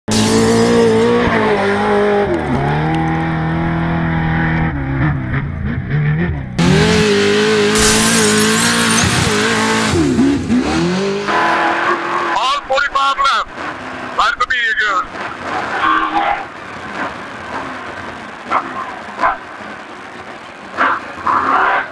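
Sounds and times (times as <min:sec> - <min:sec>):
truck engine revving high: 0:00.1 - 0:12.4.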